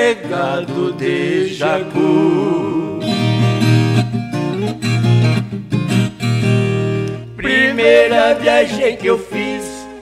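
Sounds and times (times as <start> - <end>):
acoustic guitars strummed and picked: 0.0 - 10.0.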